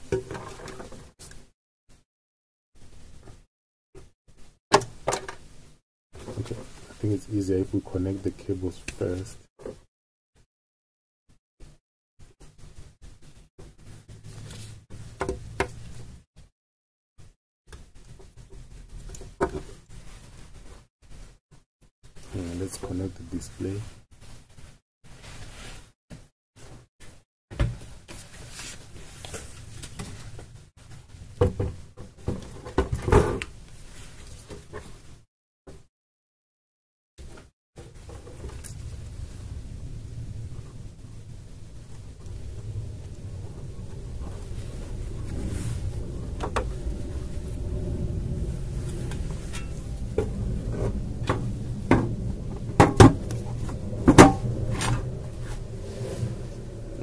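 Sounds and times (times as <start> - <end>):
plastic cover knocking and clattering: 0.0 - 1.0, 52.8 - 53.2
steady low hum: 37.9 - 57.0.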